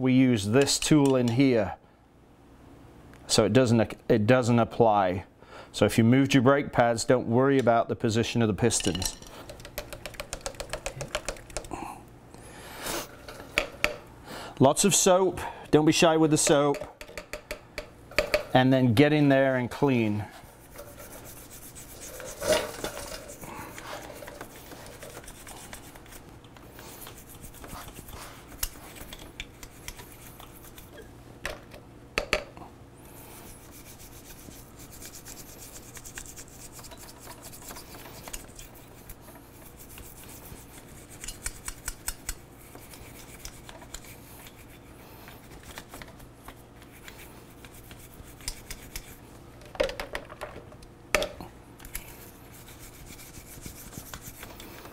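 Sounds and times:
faint steady hum: 0.0s - 54.9s
bristle brush scrubbing: 19.8s - 31.0s, 33.2s - 49.2s, 51.9s - 54.8s.

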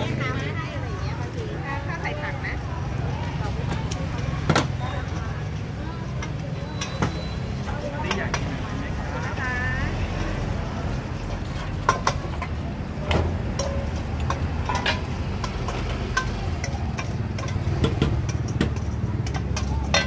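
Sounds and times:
road traffic rumble: 0.0s - 20.0s
metal bowls and ladle clinking: 3.5s - 9.4s, 10.3s - 20.0s.

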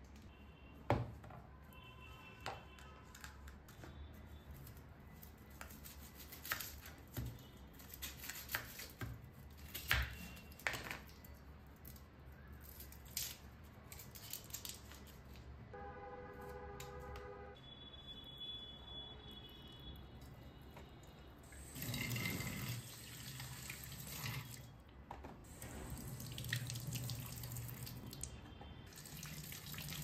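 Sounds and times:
onion skin tearing: 4.6s - 7.1s, 7.7s - 10.6s, 11.8s - 15.2s.

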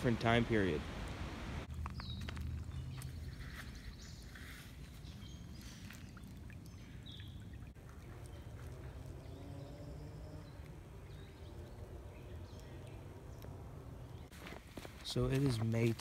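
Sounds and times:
water running over stones: 4.7s - 14.3s.

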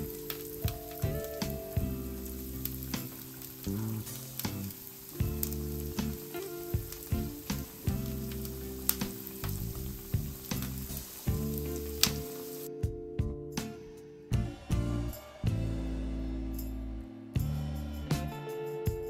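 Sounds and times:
food sizzling in hot oil: 0.0s - 12.7s
background music: 0.0s - 19.0s.

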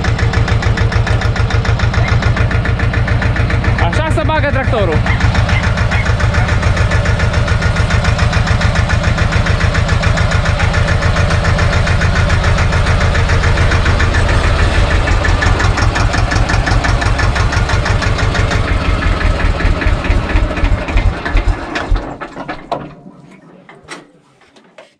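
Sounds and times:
tractor diesel engine running: 0.0s - 24.7s.

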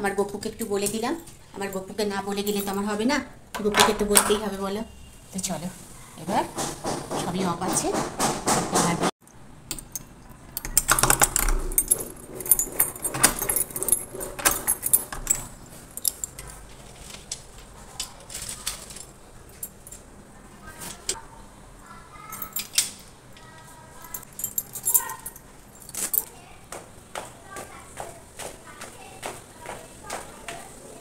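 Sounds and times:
door bolt clicking and clanking: 9.7s - 16.4s
keys jangling: 9.7s - 16.7s, 18.0s - 20.1s, 22.3s - 23.0s, 24.0s - 26.3s.

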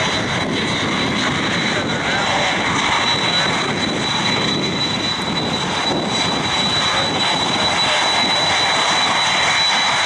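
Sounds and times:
high jet whine: 0.0s - 10.0s
jet engine roar: 0.0s - 10.0s.

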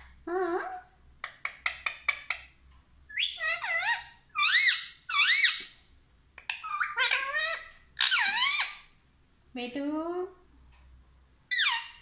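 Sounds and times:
parakeet squawking: 3.1s - 5.8s, 6.4s - 8.9s, 11.5s - 12.0s.

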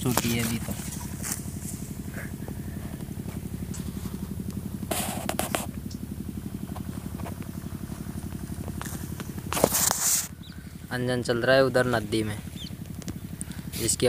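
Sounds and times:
engine chugging: 0.0s - 14.0s.

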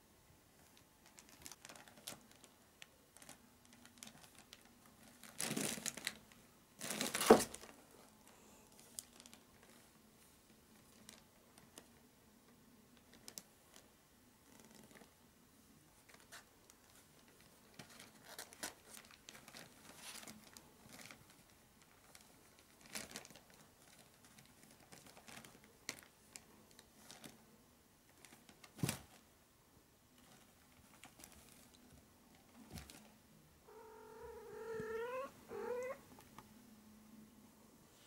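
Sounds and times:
paper and plastic crinkling: 0.6s - 7.8s, 8.8s - 9.9s, 16.0s - 27.4s, 30.2s - 33.1s.

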